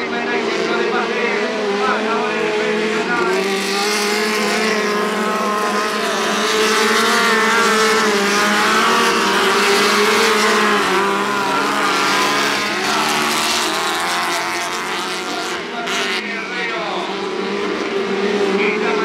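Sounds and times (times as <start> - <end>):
race car engines running hard: 0.0 - 19.0.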